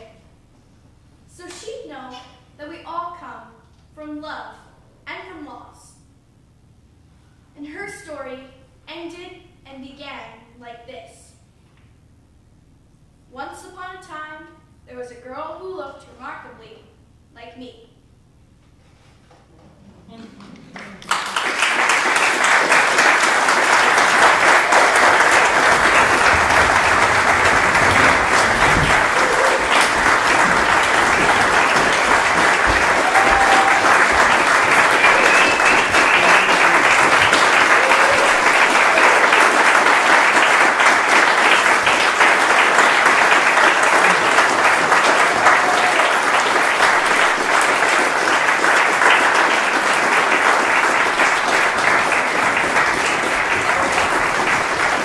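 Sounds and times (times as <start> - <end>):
audience applauding: 20.4 - 55.0.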